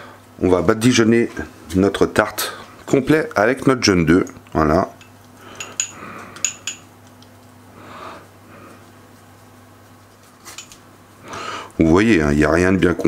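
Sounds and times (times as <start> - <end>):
brush clinking against glass bowl: 4.9 - 6.9, 10.4 - 10.8
soft brushing: 8.2 - 12.3.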